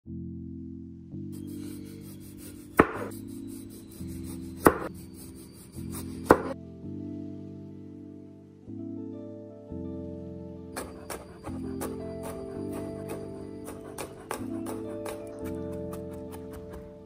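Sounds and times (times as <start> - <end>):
soft background music: 0.0 - 17.0
knife slicing tomato: 1.4 - 6.6, 10.8 - 17.0.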